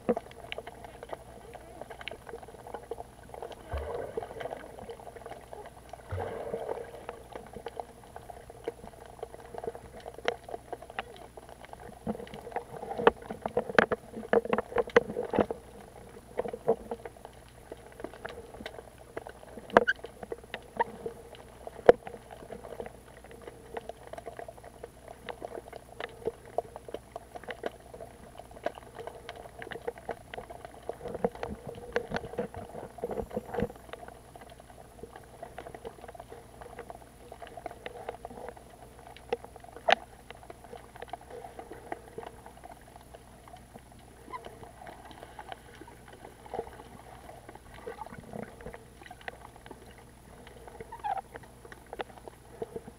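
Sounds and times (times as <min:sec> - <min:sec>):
irregular clicks and crackles: 0:00.0 - 0:52.9
muffled underwater water rush: 0:00.0 - 0:52.9.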